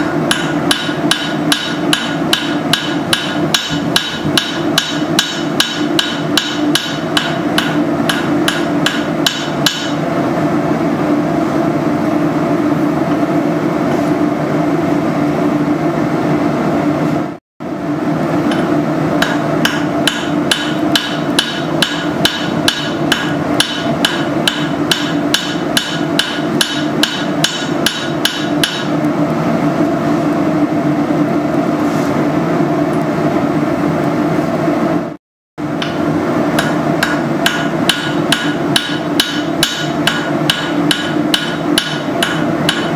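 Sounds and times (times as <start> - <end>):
hammer blows on anvil: 0.2 - 10.0, 18.5 - 29.0, 35.8 - 42.9.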